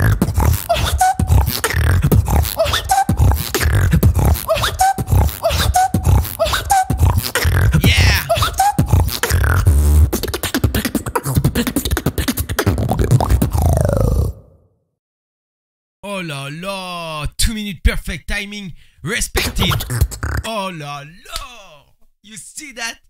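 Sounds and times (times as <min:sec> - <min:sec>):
beatboxing: 0:00.0 - 0:14.4, 0:19.4 - 0:20.6.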